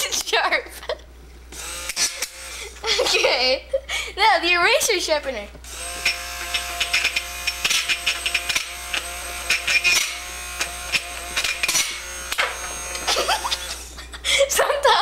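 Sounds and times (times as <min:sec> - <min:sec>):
hand blender motor whining: 0:01.5 - 0:03.1, 0:05.6 - 0:14.2.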